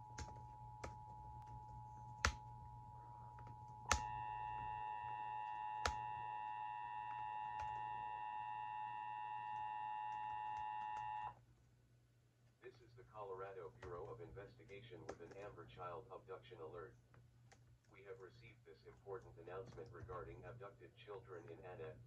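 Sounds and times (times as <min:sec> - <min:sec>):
low hum: 0:00.0 - 0:11.4.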